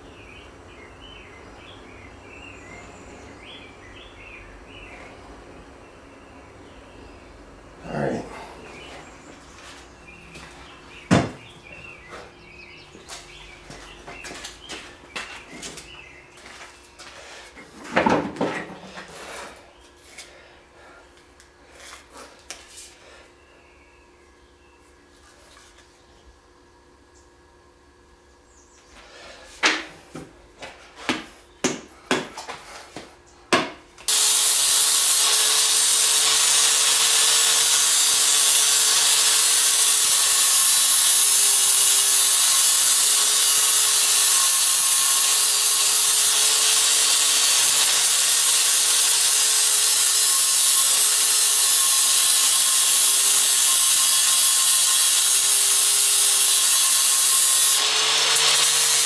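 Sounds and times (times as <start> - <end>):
angle grinder grinding wood: 34.1 - 59.0.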